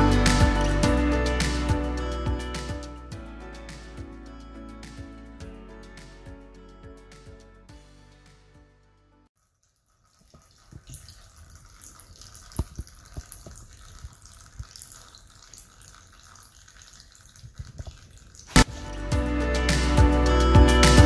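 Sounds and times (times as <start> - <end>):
oil trickling into tub: 9.4 - 18.6
oil drips splashing: 9.4 - 18.7.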